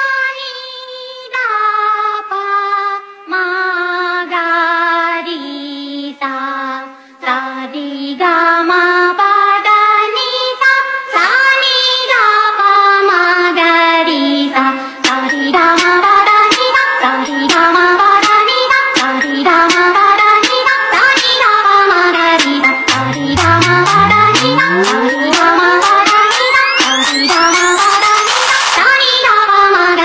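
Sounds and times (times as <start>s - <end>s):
high voice singing slow melody: 22.9s - 27.6s.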